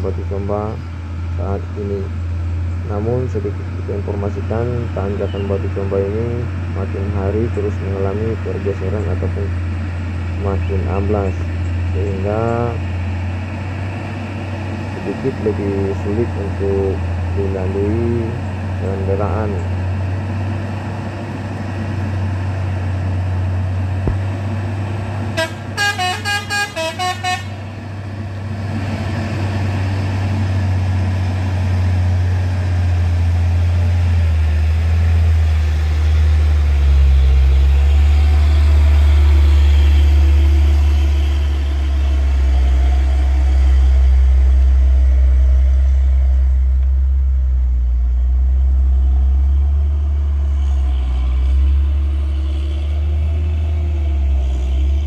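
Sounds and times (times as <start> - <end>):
diesel truck engine labouring: 0.0 - 55.0
short horn toots: 25.4 - 27.7.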